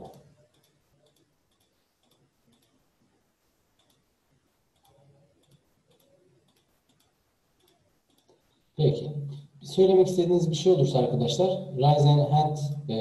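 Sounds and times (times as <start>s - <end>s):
faint clicks: 0.0s - 2.8s, 3.8s - 4.1s, 4.7s - 8.6s.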